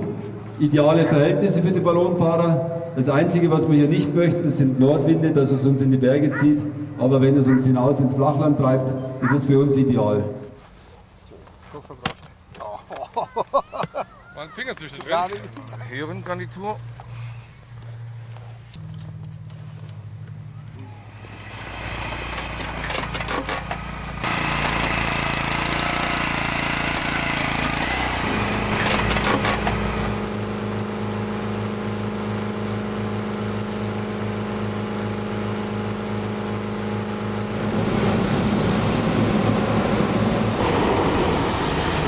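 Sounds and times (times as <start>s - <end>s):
small petrol engine fan running: 15.9s - 42.0s
propane burner roar: 20.9s - 42.0s.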